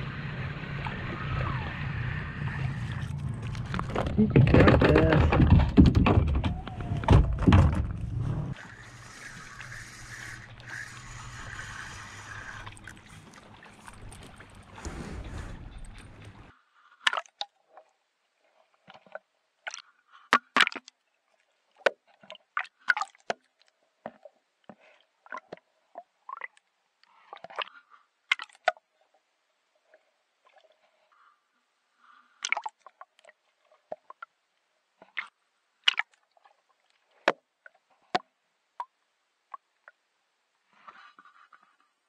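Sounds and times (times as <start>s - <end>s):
water sloshing and gurgling: 0.0s - 31.1s
sharp clicks and knocks: 3.6s - 8.0s.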